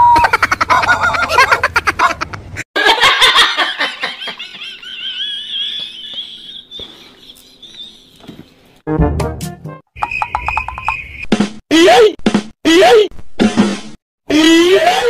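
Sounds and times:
high-pitched wavering laughter: 0.0s - 8.2s.

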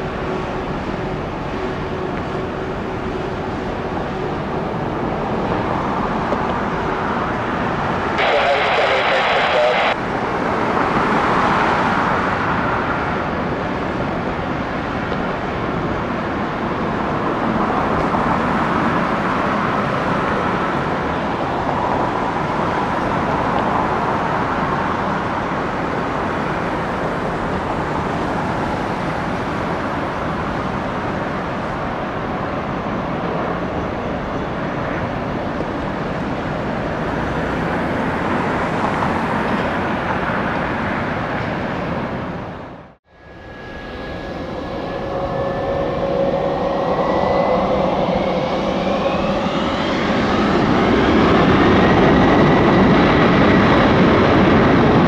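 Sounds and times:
jet engine roar: 0.0s - 55.0s.

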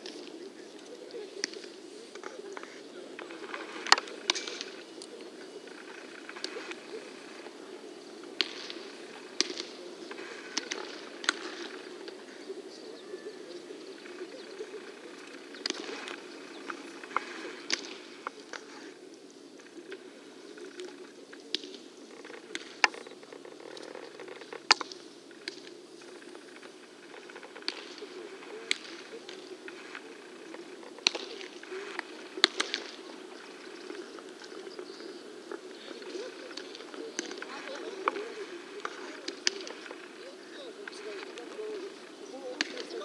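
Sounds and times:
low background noise: 0.0s - 43.0s
baseballs popping into gloves: 9.4s - 9.8s, 32.4s - 33.0s.

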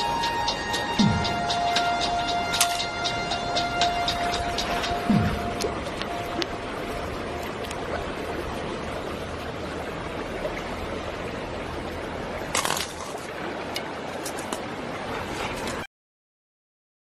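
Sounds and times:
river water flowing: 0.0s - 15.9s
clicks and scraping: 2.5s - 2.9s, 12.5s - 14.7s.

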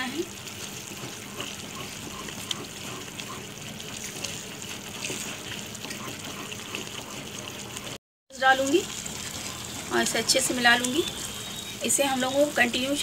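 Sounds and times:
mixture bubbling and sizzling: 0.0s - 13.0s
wooden spoon stirring: 0.0s - 13.0s.

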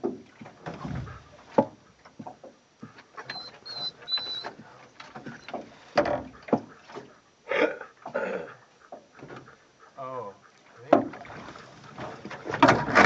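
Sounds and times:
irregular knocks and rubbing: 0.0s - 7.2s, 8.9s - 9.7s, 10.7s - 13.0s.

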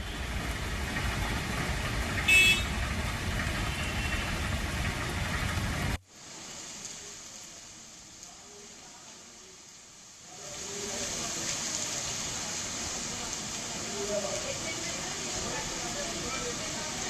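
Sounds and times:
city traffic rumble: 0.0s - 17.0s
rain falling: 0.0s - 17.0s
short horn toot: 2.3s - 2.7s.

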